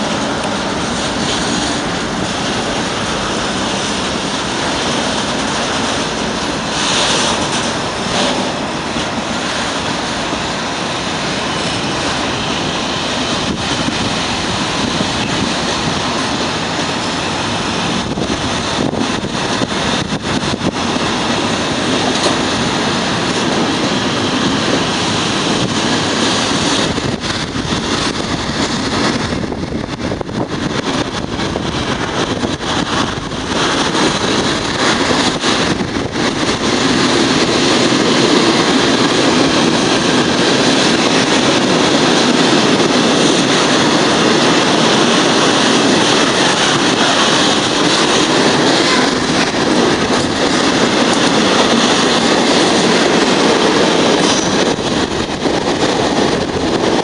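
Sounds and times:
train wheels rushing on rails: 0:00.0 - 0:57.0.

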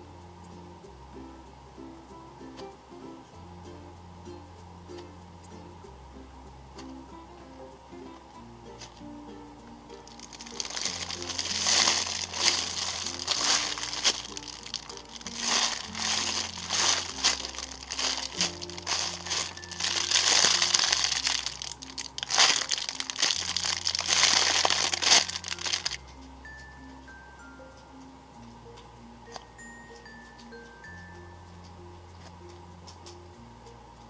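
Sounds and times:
plastic packaging crinkling: 0:10.1 - 0:26.0.

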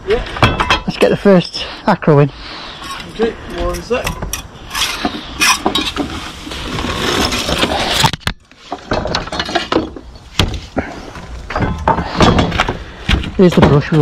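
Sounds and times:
tools scraping and clinking on boards: 0:02.7 - 0:10.4.

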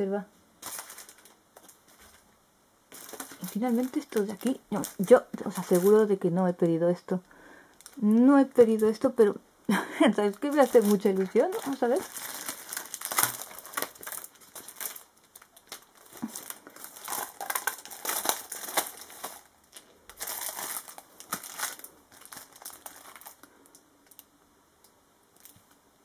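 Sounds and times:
plastic packaging crinkling: 0:00.6 - 0:02.3, 0:02.9 - 0:06.7, 0:07.6 - 0:09.2, 0:10.1 - 0:24.3, 0:25.3 - 0:25.8.

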